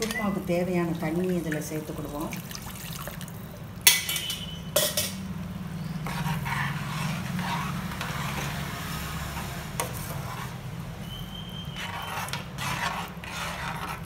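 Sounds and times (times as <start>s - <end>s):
spoon clinking on pan: 3.9s - 5.2s
spoon stirring gravy in a pan: 5.8s - 14.0s.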